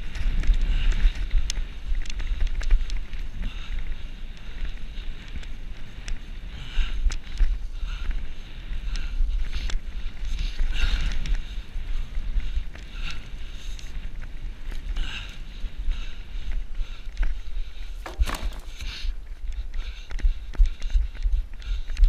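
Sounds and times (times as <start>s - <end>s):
sharp knocks and rattles: 18.0s - 18.9s.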